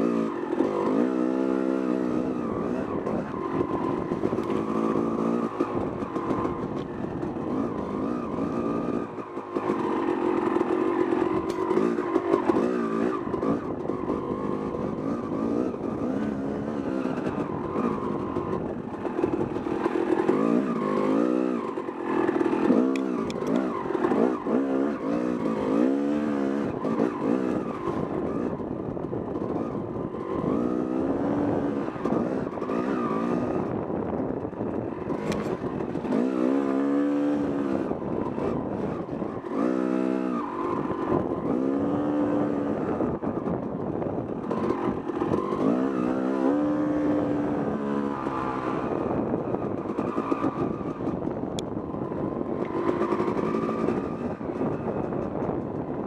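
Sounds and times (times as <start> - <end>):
dirt bike engine revving: 0.0 - 28.6, 29.4 - 43.4, 44.4 - 51.3.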